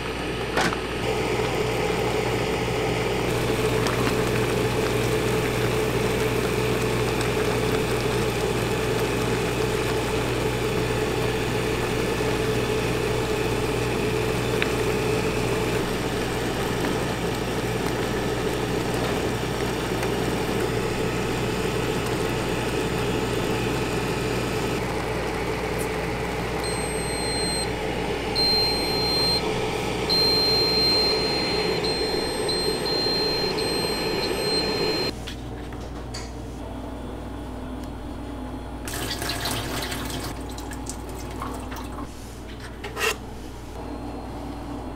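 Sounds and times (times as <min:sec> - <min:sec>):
machine mechanical hum: 0:00.0 - 0:44.9
water boiling: 0:03.3 - 0:25.6, 0:38.9 - 0:42.1
high electronic beep: 0:30.1 - 0:35.1.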